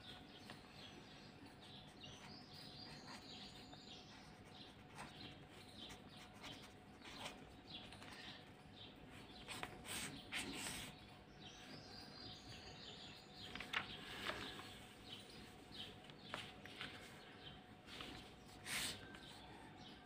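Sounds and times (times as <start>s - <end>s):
pen scratching on paper: 1.5s - 8.3s.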